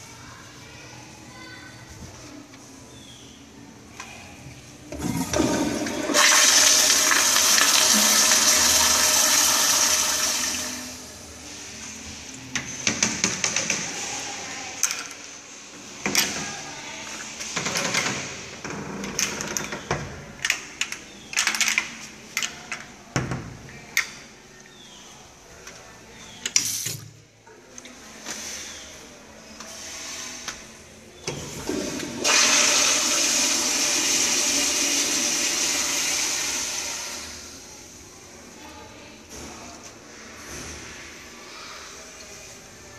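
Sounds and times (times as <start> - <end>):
toilet flushing: 4.9 - 11.3, 31.3 - 37.6.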